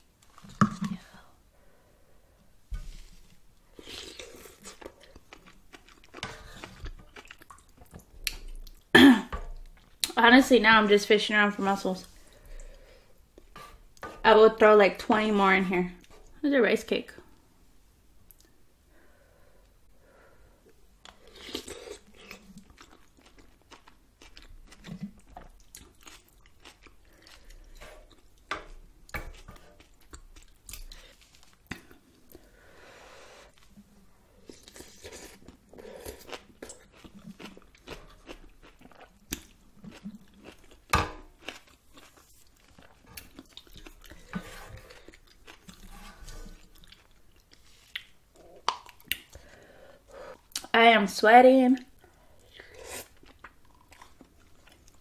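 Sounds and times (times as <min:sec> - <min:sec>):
person chewing noodle soup: 0:03.7 - 0:08.9, 0:20.7 - 0:32.7, 0:33.4 - 0:50.7, 0:52.0 - 0:55.0.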